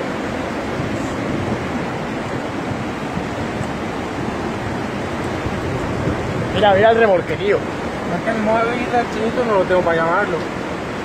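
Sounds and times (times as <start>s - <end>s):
floodwater rushing: 0.0s - 11.0s.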